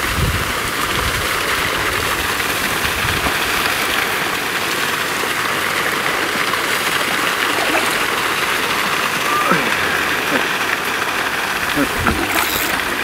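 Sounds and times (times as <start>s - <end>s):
water hissing: 6.4s - 13.0s.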